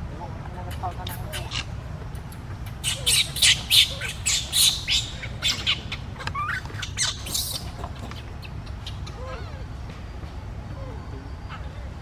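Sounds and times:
baby monkey squealing: 0.7 - 1.7, 2.7 - 9.7.

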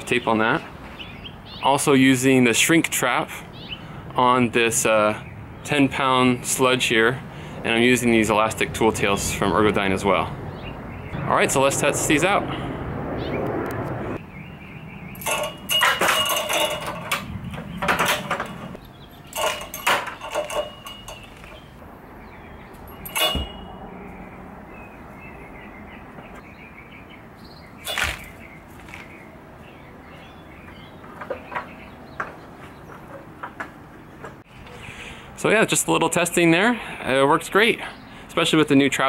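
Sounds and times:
sledgehammers knocking and rattling: 15.2 - 21.8, 22.8 - 23.8, 27.9 - 29.2.

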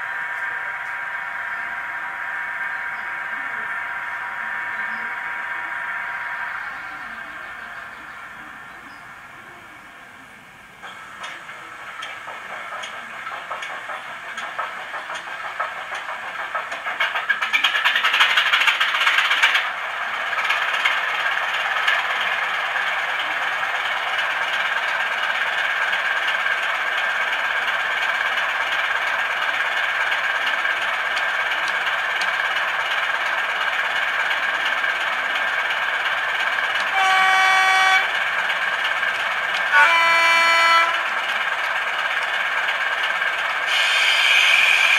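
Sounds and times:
diesel locomotive engine idling: 0.0 - 44.9
locomotive horn blasts: 36.9 - 38.1, 39.7 - 41.0.

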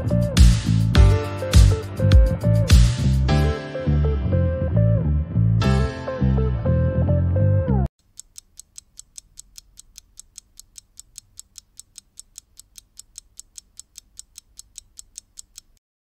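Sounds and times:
fast sharp ticking: 8.0 - 15.8.

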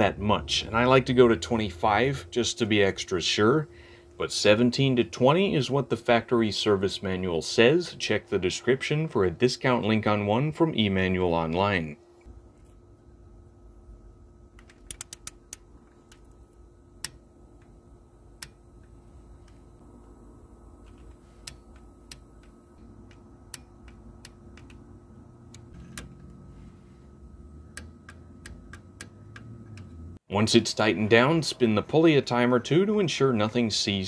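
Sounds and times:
faint steady hum: 0.0 - 34.0
socket ratchet clicking: 14.6 - 16.4, 27.6 - 30.0.

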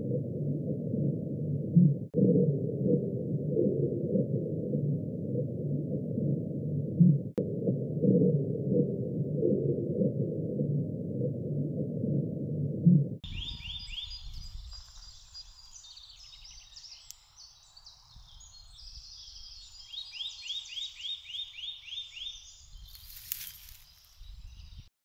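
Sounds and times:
low muffled rumble: 0.0 - 15.4
faint low rumble: 0.0 - 16.2
songbirds singing: 13.2 - 24.9.

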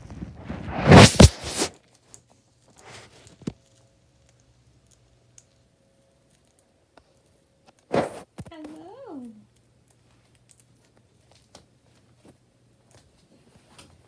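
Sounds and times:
blanket rustling: 0.0 - 1.7.

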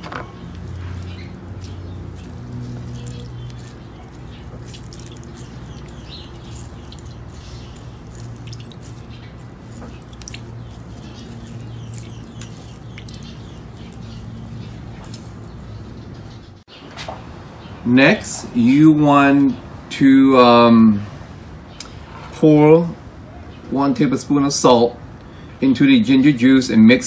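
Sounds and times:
wet squelching in mesh strainer: 0.4 - 16.0
juice dripping into glass bowl: 0.5 - 15.3.

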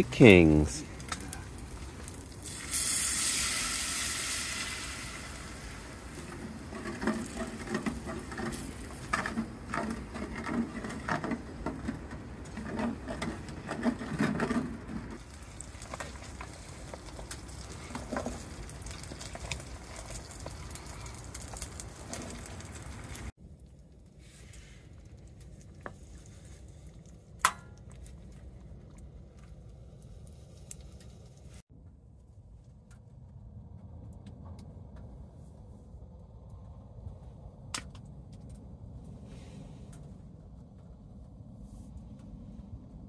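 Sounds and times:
food sizzling in a hot pan: 2.4 - 6.1.

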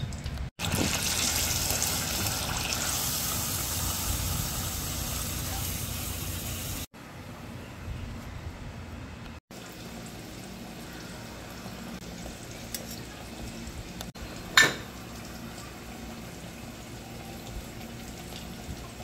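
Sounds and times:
kitchen background noise: 9.5 - 19.0
tableware clink: 14.6 - 14.9.

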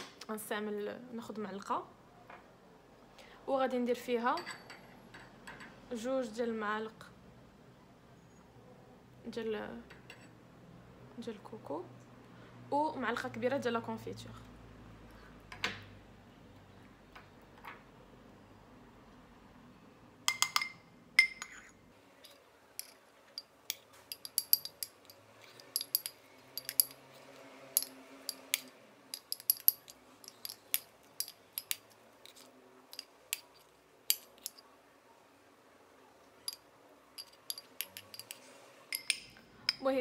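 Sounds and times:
metal spoon clinking in cup: 4.4 - 5.7, 20.3 - 34.7, 36.4 - 39.9.

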